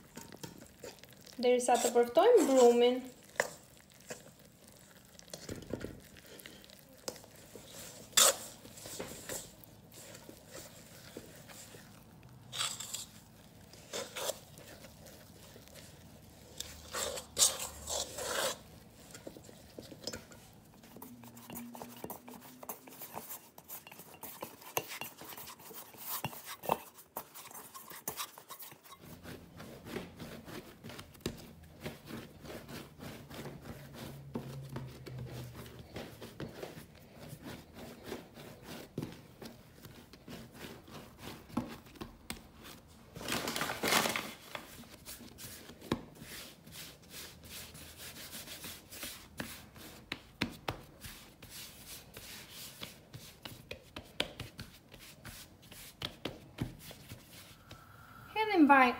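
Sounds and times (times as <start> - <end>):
dough scraping steel bowl: 0.0 - 57.7
hands kneading sticky dough: 0.0 - 58.9
kneading on wooden board: 45.0 - 57.8.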